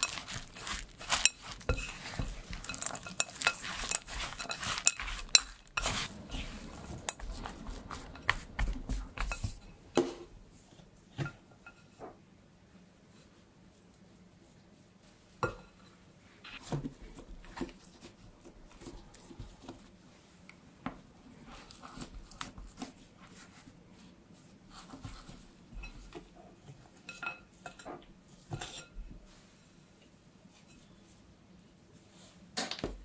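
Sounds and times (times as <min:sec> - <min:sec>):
spoon stirring dough in glass bowl: 0:00.0 - 0:10.3, 0:24.8 - 0:29.4.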